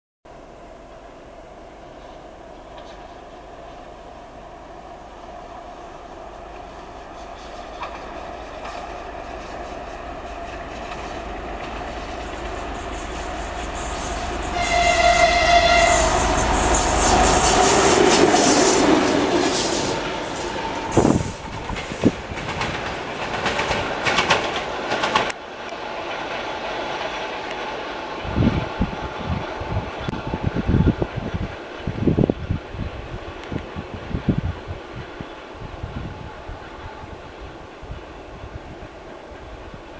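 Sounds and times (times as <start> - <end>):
diesel locomotive engine: 0.3 - 39.9
locomotive horn blast: 13.7 - 21.5.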